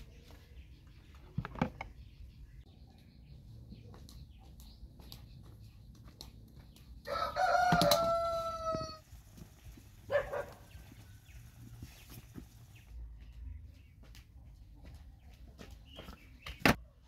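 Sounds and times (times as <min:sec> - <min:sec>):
rooster crowing: 0:07.1 - 0:09.0.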